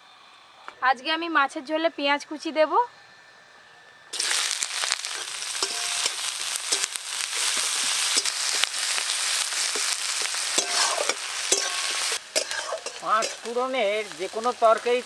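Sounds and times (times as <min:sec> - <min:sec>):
onions sizzling in hot oil: 0:04.1 - 0:15.0
metal spatula scraping a pan: 0:05.1 - 0:08.7, 0:09.7 - 0:13.6.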